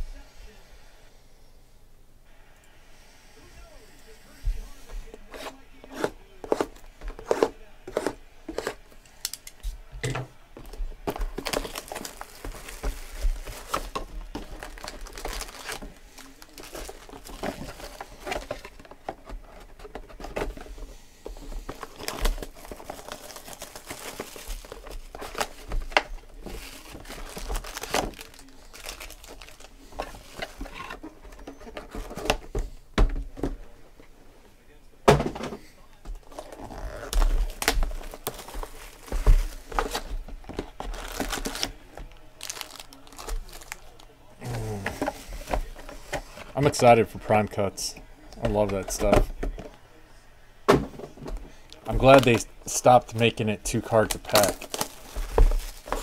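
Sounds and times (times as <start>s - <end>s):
foil packs crinkling: 10.6s - 32.6s, 36.1s - 47.9s, 51.2s - 56.0s.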